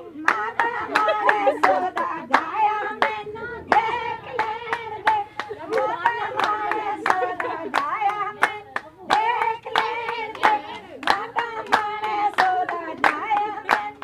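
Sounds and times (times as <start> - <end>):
women singing together: 0.0 - 14.0
hand claps: 4.4 - 14.0.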